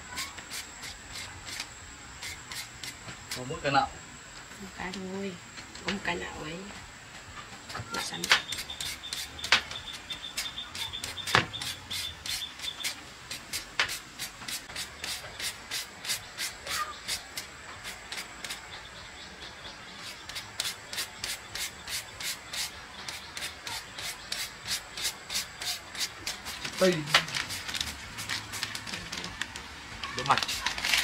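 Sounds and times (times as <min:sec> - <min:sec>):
rhythmic hand scraping: 0:08.0 - 0:18.7, 0:20.0 - 0:28.6.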